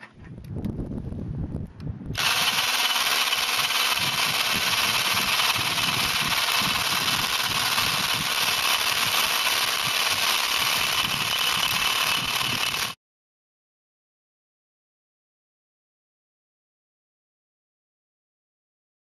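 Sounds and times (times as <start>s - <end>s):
hammer drill drilling into brick: 2.2s - 13.0s.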